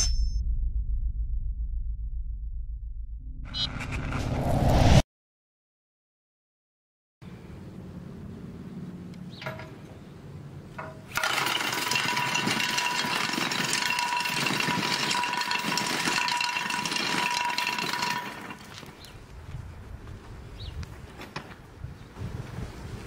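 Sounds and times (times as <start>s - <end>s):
chains smashing clay tile: 11.1s - 19.0s.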